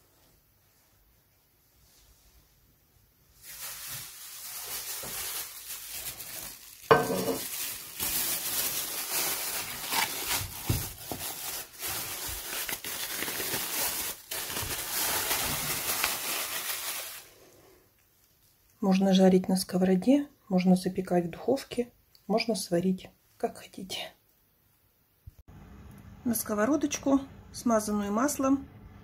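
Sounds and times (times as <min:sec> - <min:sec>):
plastic film crinkling: 0:03.3 - 0:17.4.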